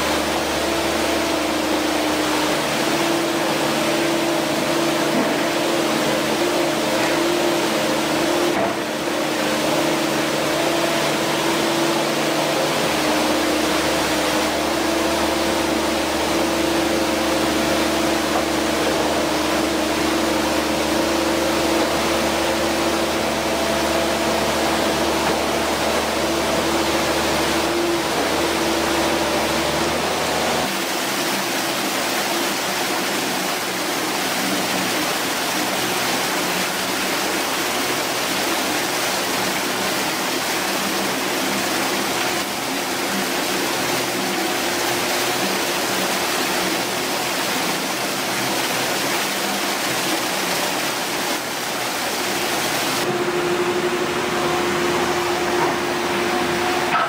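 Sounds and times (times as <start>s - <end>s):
rushing floodwater: 0.0s - 57.0s
diesel engine humming: 49.4s - 57.0s.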